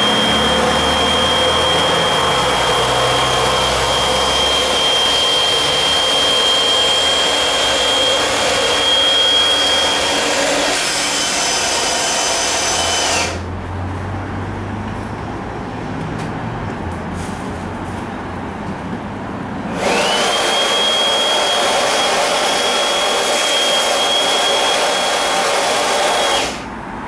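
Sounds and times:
electric air blower whining: 0.0 - 13.5, 19.7 - 26.8.

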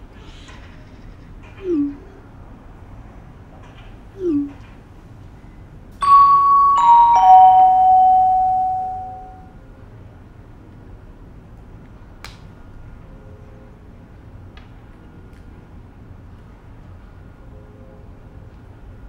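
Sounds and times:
descending chime notes: 6.0 - 9.4.

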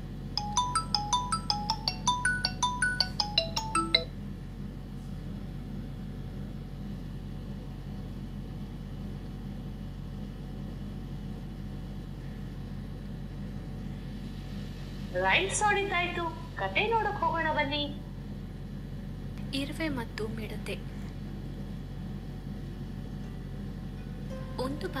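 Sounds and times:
steady low hum: 0.0 - 25.0
phone ringtone melody: 0.4 - 4.1.

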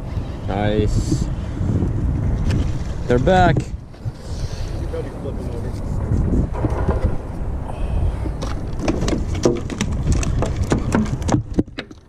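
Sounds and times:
wind rumble on microphone: 0.0 - 12.0
fish flopping on wooden planks: 8.2 - 12.0.

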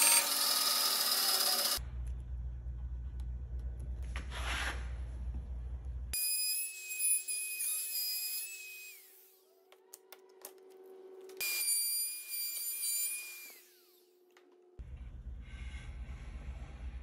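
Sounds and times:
router whining: 0.0 - 1.8.

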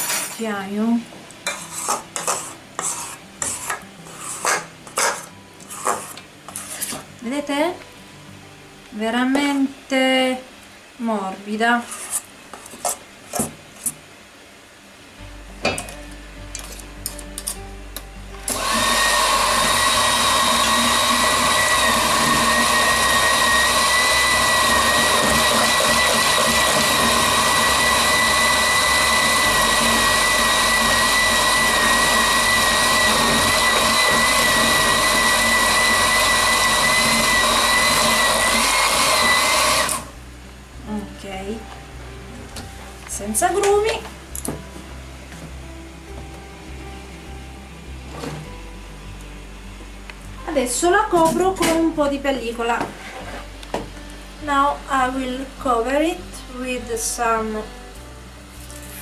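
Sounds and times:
electric mixer whining: 18.5 - 40.1.

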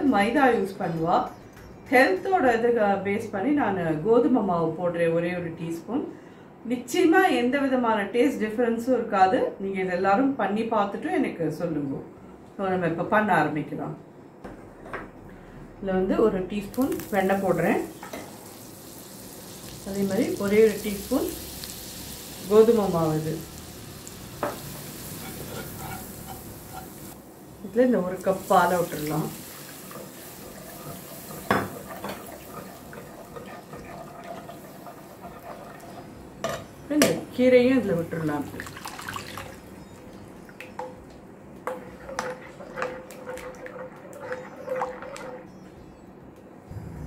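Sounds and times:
butter and flour sizzling in a pan: 16.7 - 36.0.

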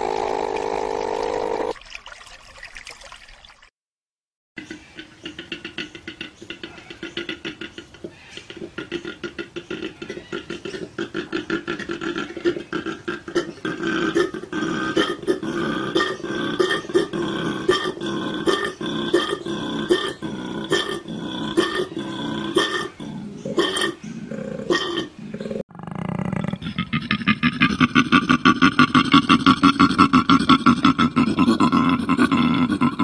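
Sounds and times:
koala bellowing: 0.0 - 1.8.

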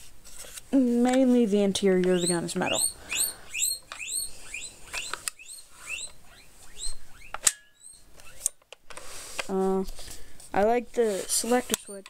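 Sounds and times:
sharp clicks: 2.0 - 6.2
small animal squeaking: 2.1 - 8.4.

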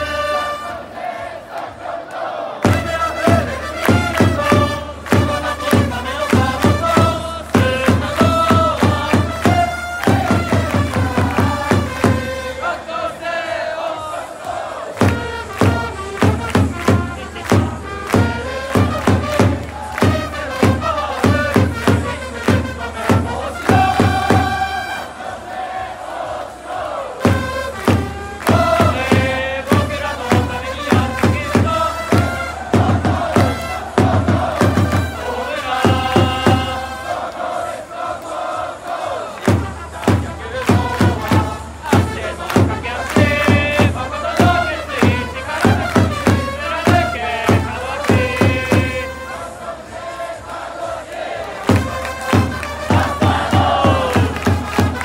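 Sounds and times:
brass-like held notes: 0.0 - 1.3, 14.6 - 25.4, 51.6 - 55.0
crowd chanting: 0.0 - 55.0
trumpets playing a fight song: 0.0 - 55.0
drum beats: 2.6 - 55.0.

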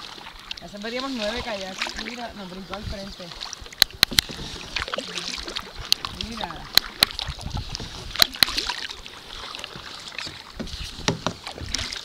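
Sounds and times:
paddle water sloshing: 0.0 - 12.0
sharp knocks: 10.6 - 11.5.

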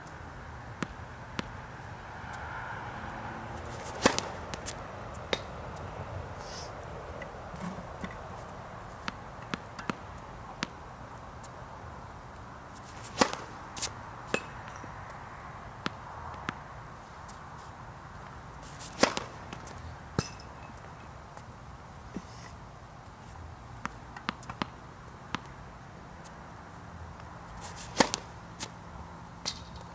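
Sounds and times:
tennis ball bouncing: 0.8 - 1.6, 3.6 - 5.9, 6.8 - 8.3, 8.9 - 10.8, 12.8 - 14.9, 15.8 - 16.6, 18.2 - 21.0, 23.8 - 25.6, 27.6 - 28.7
racket striking tennis ball: 3.6 - 5.6, 9.0 - 10.8, 12.8 - 14.9, 18.6 - 20.7, 27.6 - 28.7.

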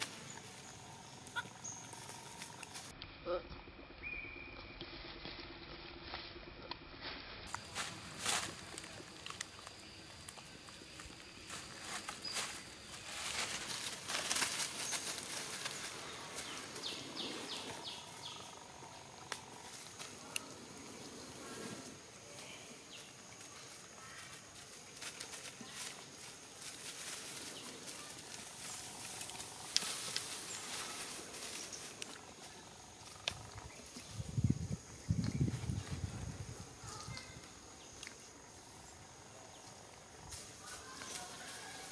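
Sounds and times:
faint insect drone: 0.0 - 41.9
dry leaves rustling and crackling: 7.0 - 37.7, 39.7 - 41.9.

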